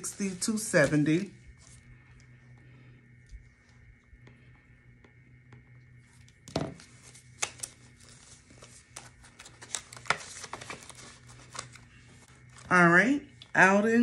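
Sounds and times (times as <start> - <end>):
paper rustling and crinkling: 0.0 - 2.0, 6.1 - 12.7.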